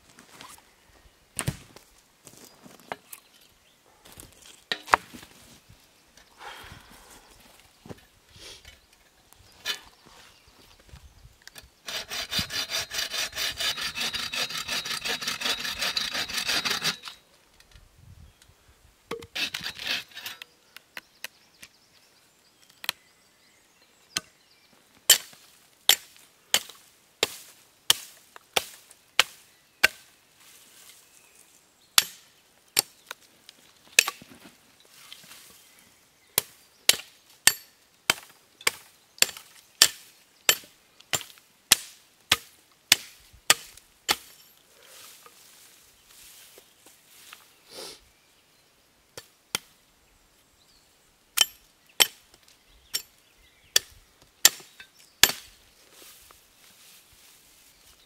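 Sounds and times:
saw cutting dry wood: 11.8s - 17.2s, 19.3s - 20.4s
axe chopping wood: 32.0s - 32.2s, 36.4s - 44.4s, 53.8s - 55.5s.

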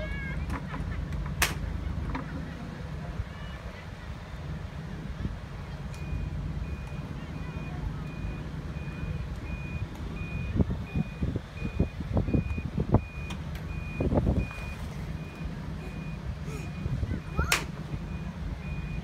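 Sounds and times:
electronic warning beeper: 6.0s - 17.4s.

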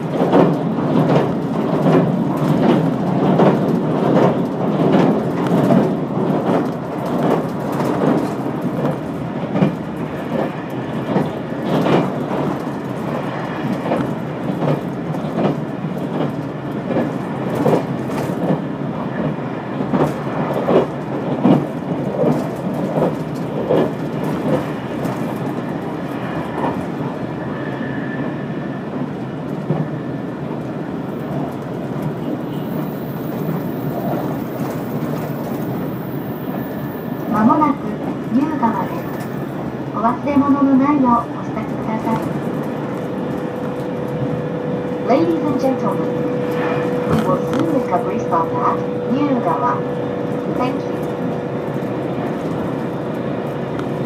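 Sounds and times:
train low rumble: 0.0s - 54.0s.

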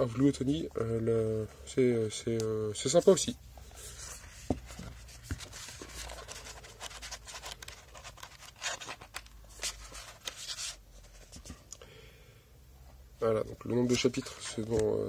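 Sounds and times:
book pages flipping: 3.6s - 11.8s, 13.9s - 15.0s.

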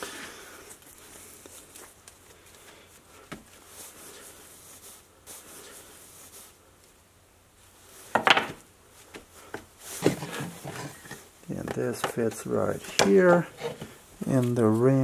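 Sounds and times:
handling noise on a bench: 8.1s - 14.5s.

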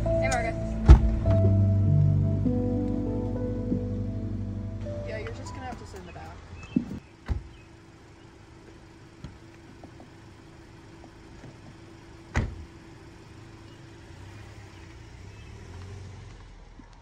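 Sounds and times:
car engine idling: 0.0s - 17.0s
car door shutting: 0.3s - 1.6s, 6.7s - 7.6s, 12.3s - 12.7s.

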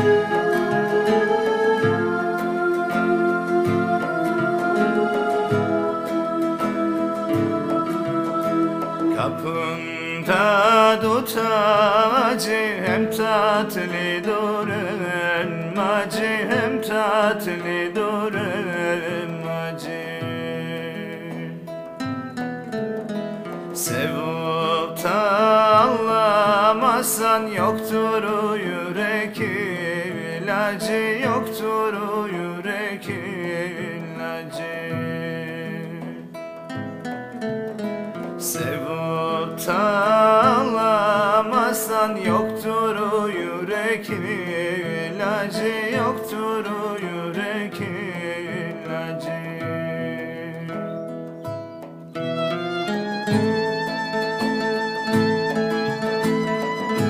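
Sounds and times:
wavering melody line: 0.0s - 10.4s, 52.2s - 57.0s
acoustic guitar playing: 0.0s - 57.0s.

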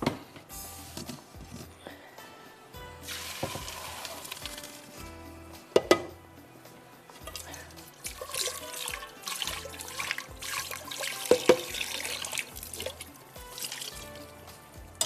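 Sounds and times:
tap water running into pot: 3.1s - 4.6s, 7.2s - 14.2s.

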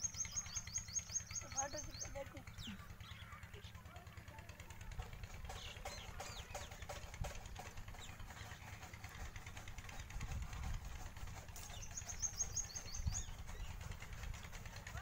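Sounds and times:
bird clucking: 5.1s - 15.0s.

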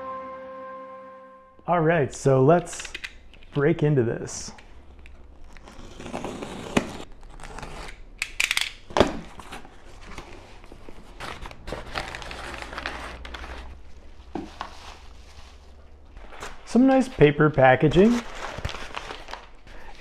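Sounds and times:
box cutter slitting cardboard: 5.6s - 8.0s
packing paper rustling: 9.2s - 20.0s.

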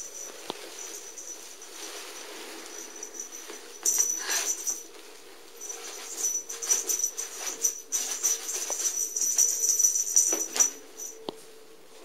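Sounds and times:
crinkly cat toy rustling: 0.0s - 11.2s.

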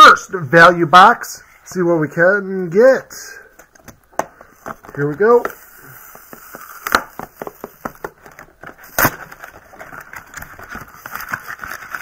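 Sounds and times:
cardboard packaging crackling: 4.8s - 12.0s.

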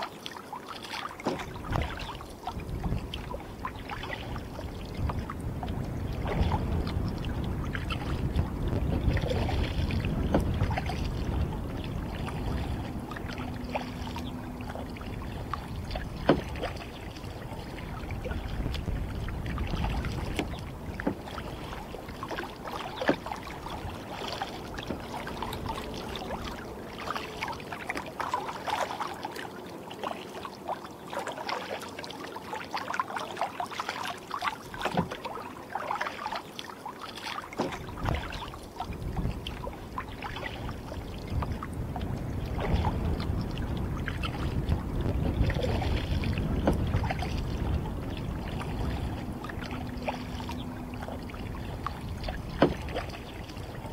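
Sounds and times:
water splashing against a kayak: 0.0s - 53.9s
wind rumble on microphone: 1.3s - 29.4s, 37.5s - 53.9s.

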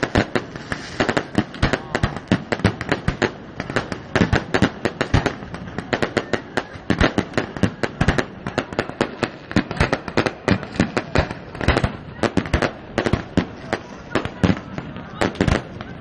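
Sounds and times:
fireworks bangs and cracks: 0.0s - 16.0s.

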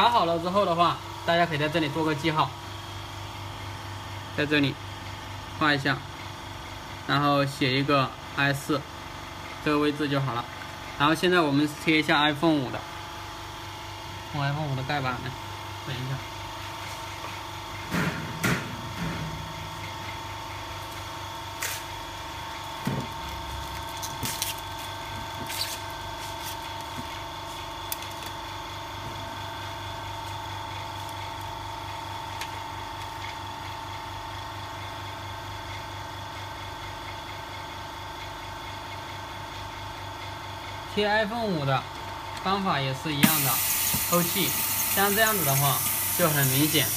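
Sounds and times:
laminating machine humming: 38.7s - 46.9s.

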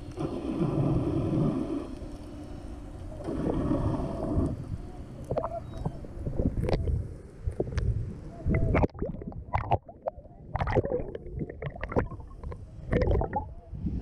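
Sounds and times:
underwater churning rumble: 0.0s - 14.0s
bubbles gurgling and popping: 8.5s - 13.5s.

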